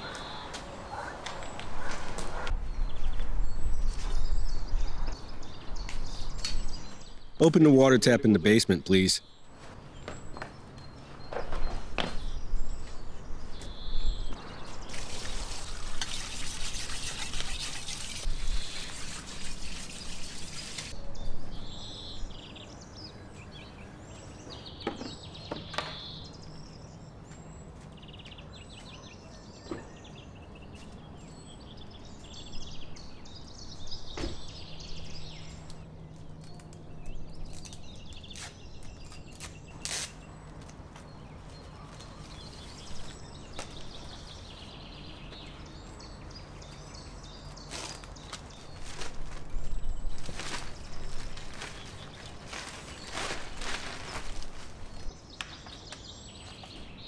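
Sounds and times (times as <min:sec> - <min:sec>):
birds chirping: 0:00.0 - 0:57.0
water running from hose: 0:14.9 - 0:20.9.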